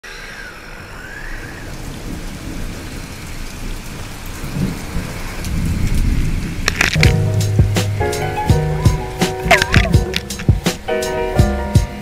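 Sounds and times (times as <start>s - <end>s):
faint high whistle: 0.0s - 1.9s
rain hiss: 0.0s - 12.0s.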